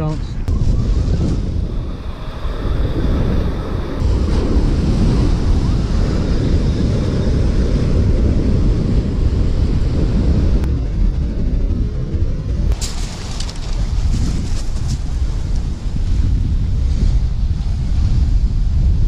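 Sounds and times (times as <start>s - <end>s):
wind buffeting microphone: 0.0s - 19.0s
waves breaking on shingle: 12.8s - 15.4s.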